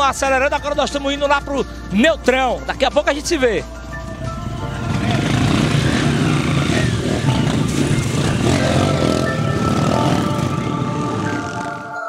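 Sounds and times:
dirt bike engines running: 0:03.0 - 0:11.7.

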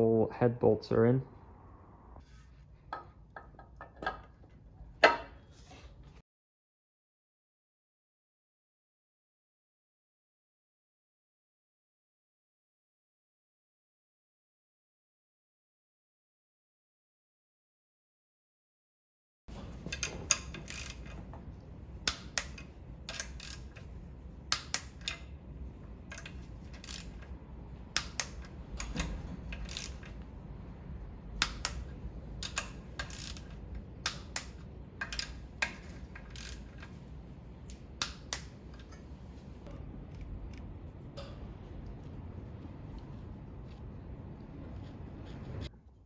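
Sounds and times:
socket ratchet clicking: 0:19.9 - 0:21.2, 0:22.0 - 0:23.9, 0:24.5 - 0:25.3, 0:26.1 - 0:27.4, 0:28.0 - 0:30.2, 0:31.4 - 0:37.0, 0:37.7 - 0:39.0.

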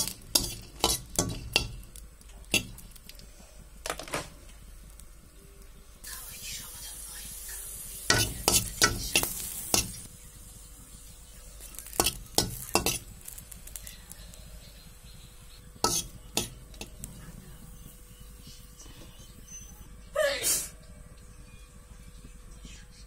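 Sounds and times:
spatula scraping and tapping a pan: 0:00.0 - 0:03.2, 0:08.1 - 0:10.1, 0:11.8 - 0:13.8, 0:15.8 - 0:17.1
light sizzle: 0:00.0 - 0:22.8.

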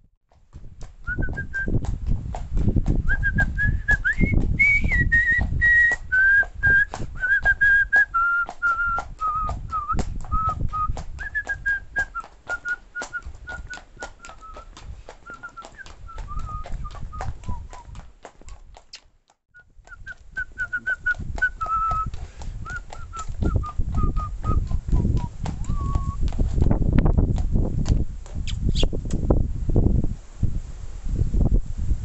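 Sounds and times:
low rumble on microphone: 0:00.0 - 0:07.3, 0:09.1 - 0:12.1, 0:16.0 - 0:18.0, 0:19.7 - 0:32.0
horse hooves on asphalt: 0:00.3 - 0:30.6
man whistling: 0:01.0 - 0:01.8, 0:03.0 - 0:18.0, 0:19.5 - 0:26.2.

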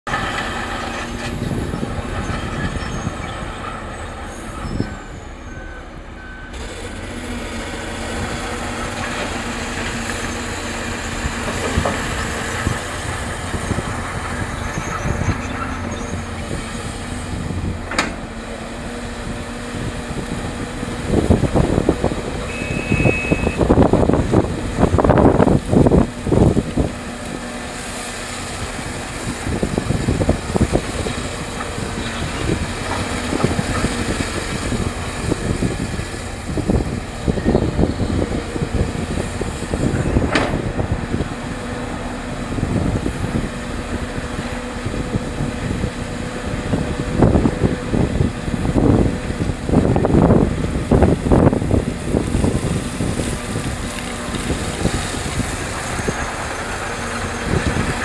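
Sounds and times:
excavator diesel engine: 0:00.0 - 0:58.0
reversing alarm beeping: 0:22.5 - 0:23.7.

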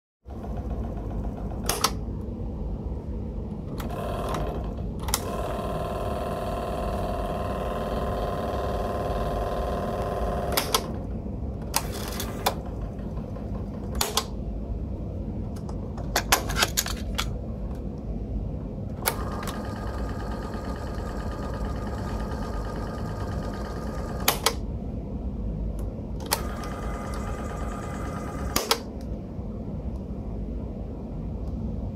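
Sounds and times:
low steady hum: 0:00.3 - 0:31.9
tape motor whine: 0:03.5 - 0:14.3, 0:18.9 - 0:24.6, 0:26.2 - 0:28.9.

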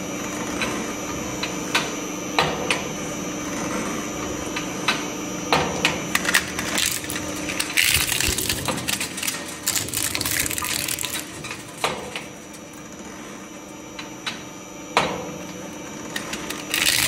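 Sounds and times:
shredder humming and whining: 0:00.0 - 0:17.0
toy car being shredded: 0:06.1 - 0:13.7, 0:16.1 - 0:17.0.

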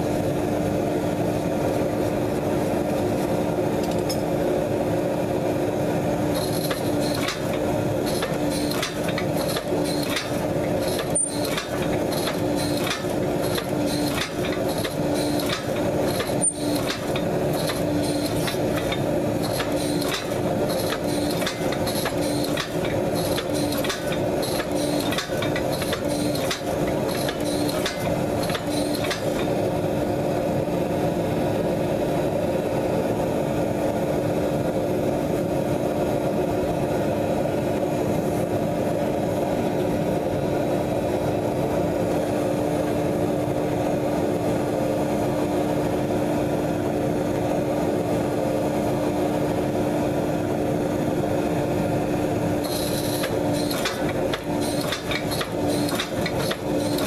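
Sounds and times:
forging press hum: 0:06.2 - 0:30.1, 0:51.5 - 0:57.0.

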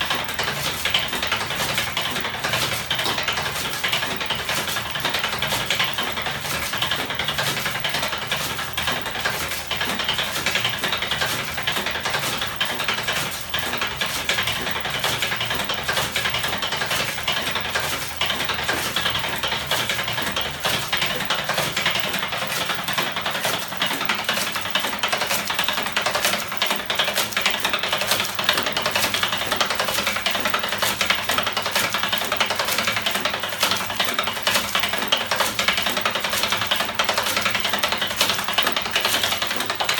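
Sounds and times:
engine mechanism clattering: 0:00.0 - 0:39.9.

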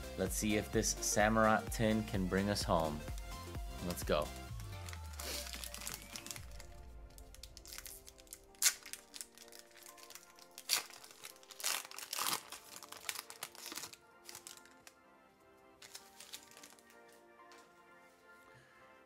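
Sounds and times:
soft background music: 0:00.0 - 0:19.0
foil wrapper crinkling and tearing: 0:04.5 - 0:15.0, 0:15.8 - 0:17.1.

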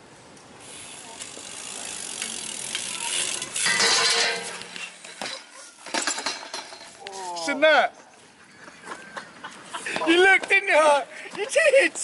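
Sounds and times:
bike tyres on paving: 0:00.0 - 0:07.6.

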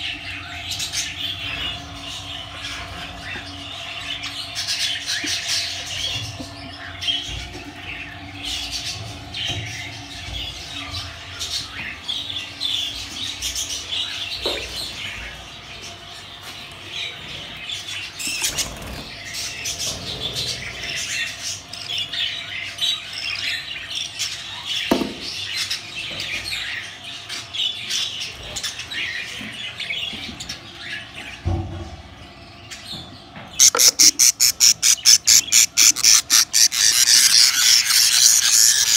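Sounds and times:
budgerigar chicks chirping: 0:00.0 - 0:38.9
bird squealing rapidly: 0:33.6 - 0:38.9.

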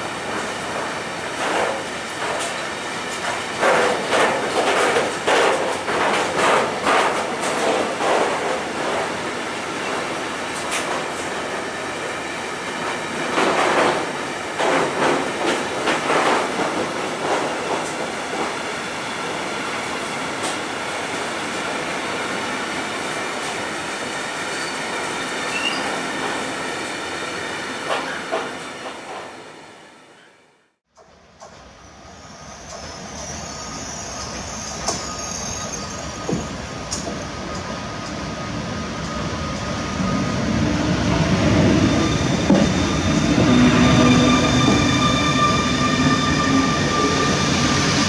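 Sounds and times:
freight train wheels clattering: 0:00.2 - 0:11.5, 0:12.7 - 0:21.3.

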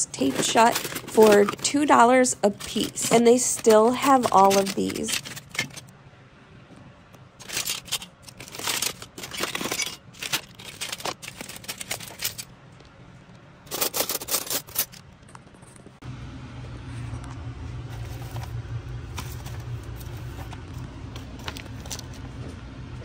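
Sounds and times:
steady low hum: 0:00.0 - 0:23.0
knives clinking in a box: 0:00.2 - 0:05.8, 0:07.4 - 0:12.5, 0:13.7 - 0:15.0.

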